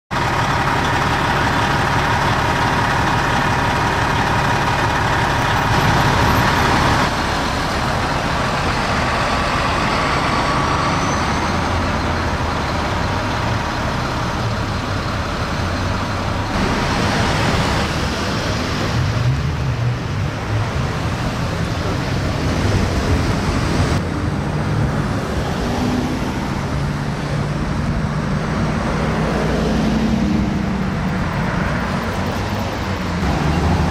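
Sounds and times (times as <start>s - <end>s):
cars passing: 0.1s - 33.9s
engine rumble: 0.1s - 33.9s.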